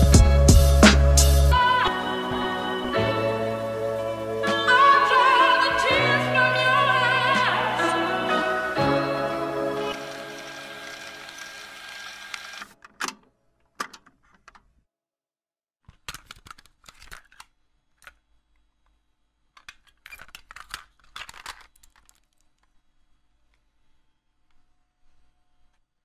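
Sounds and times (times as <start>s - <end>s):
background music: 0.0s - 12.3s.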